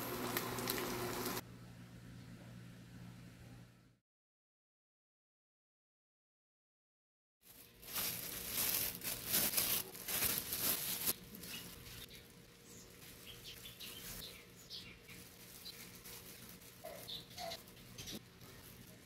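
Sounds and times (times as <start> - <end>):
plastic bag and gloves crinkling: 7.4 - 19.0.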